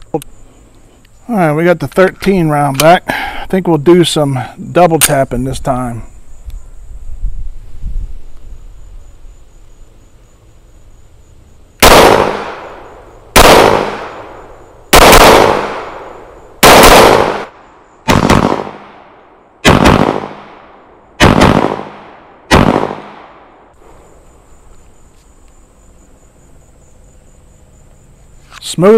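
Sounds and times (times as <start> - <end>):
pistol shots: 11.8 - 23.5.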